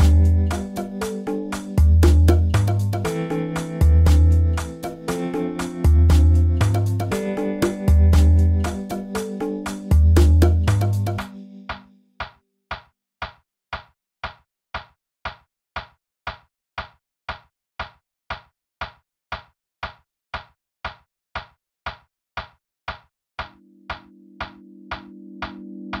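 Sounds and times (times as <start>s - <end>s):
held music chord: 0.0s - 11.7s.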